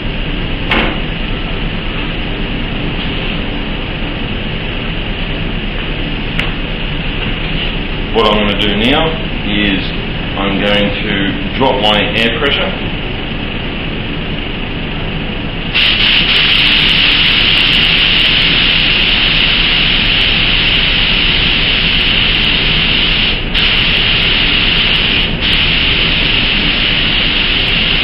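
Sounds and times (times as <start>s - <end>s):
spray gun air hissing: 15.7s - 28.0s.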